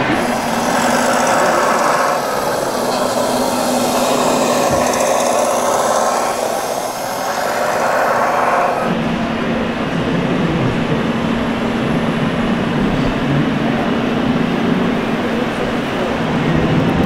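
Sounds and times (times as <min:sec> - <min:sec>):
model tractor motor whirring: 0:00.0 - 0:09.0.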